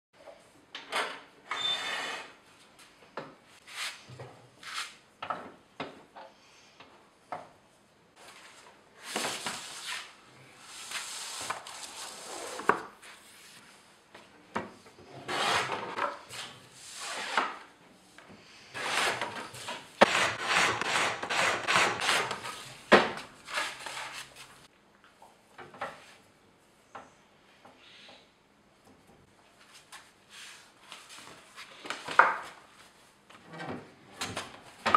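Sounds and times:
boards scraping across metal: 15.2 - 16.0.

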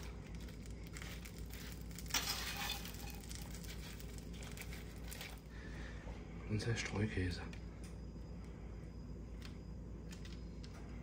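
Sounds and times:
rustling scrape: 0.0 - 5.4.

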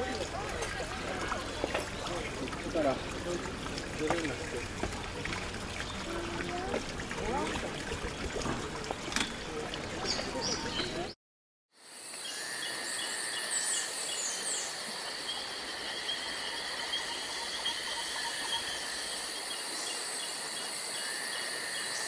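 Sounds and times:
insects chirping: 11.8 - 22.0.

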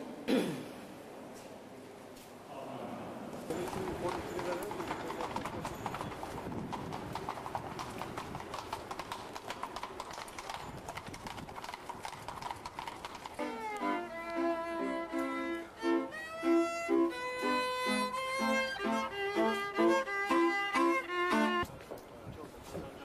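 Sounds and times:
street noise: 0.0 - 23.0
hooves clip-clopping on cobblestones: 3.3 - 23.0
lively violin music: 13.3 - 21.7.

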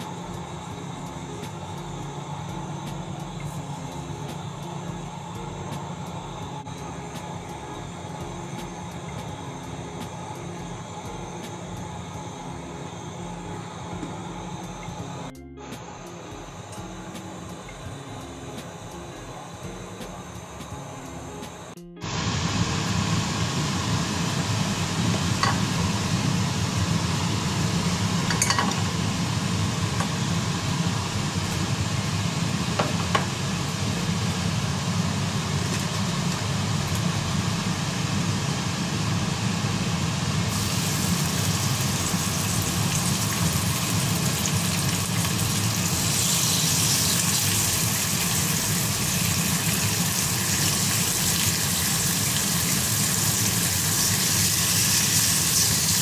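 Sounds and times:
steady low hum: 0.0 - 56.0
oil sizzling in a frying pan: 22.0 - 56.0.

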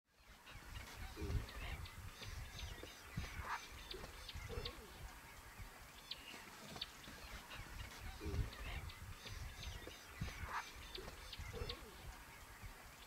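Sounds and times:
birds chirping: 0.1 - 13.0.

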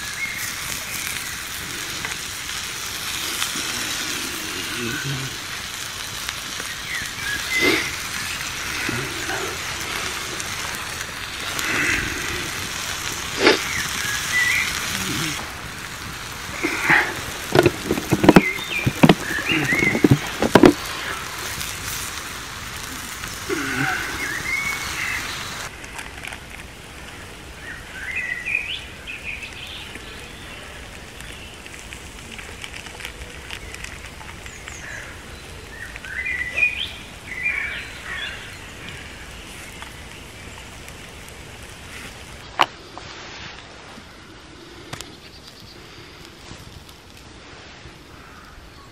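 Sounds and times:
birds chirping: 0.0 - 25.7, 27.0 - 46.4
food sizzling on hot slate: 0.0 - 48.6
sharp knocks and pops: 17.5 - 20.8.

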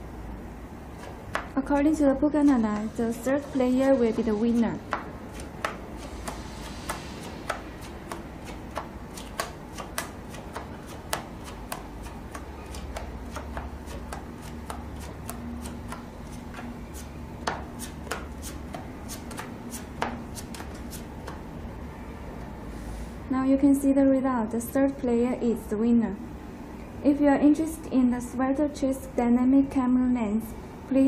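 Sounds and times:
steady low hum: 0.0 - 31.0
playing cards snapping and tapping: 1.0 - 1.6, 4.9 - 21.4.

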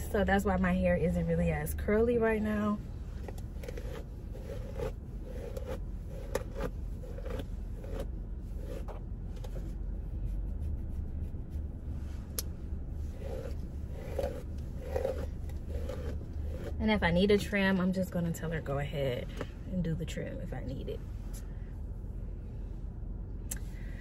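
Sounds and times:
low steady hum: 0.0 - 24.0
hairbrush strokes through hair: 13.0 - 16.8.

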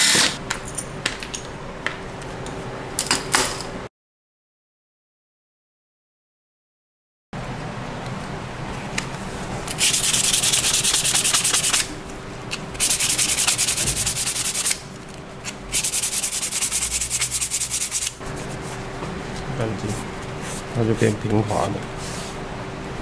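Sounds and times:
brush scrubbing metal: 9.7 - 11.8, 12.8 - 14.8, 15.7 - 18.7.

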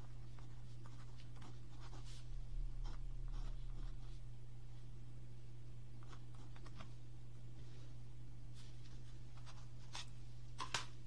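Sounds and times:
pen scratching on paper: 0.0 - 4.2, 6.0 - 6.9
steady low hum: 0.0 - 11.0.

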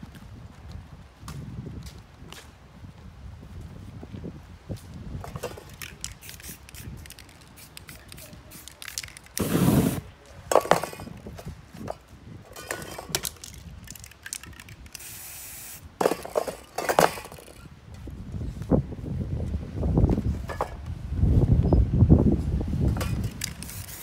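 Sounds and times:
spray cans and tools clinking: 5.2 - 17.7, 22.9 - 24.0
spray can hiss: 5.4 - 10.1, 14.3 - 15.9, 23.0 - 24.0
aerosol flame burst: 9.4 - 10.1.

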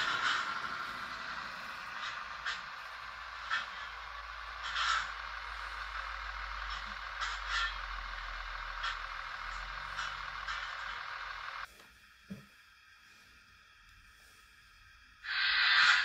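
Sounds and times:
model trains whirring: 0.0 - 11.7, 12.8 - 16.0
low hum: 0.0 - 16.0.

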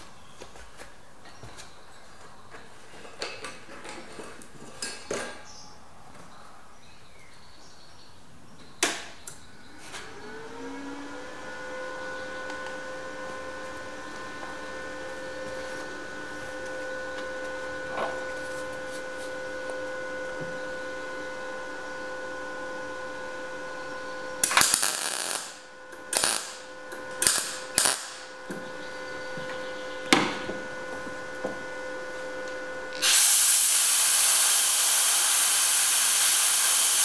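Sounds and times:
steady electrical hum: 0.0 - 37.0
welder crackling: 24.4 - 28.6, 33.0 - 37.0.

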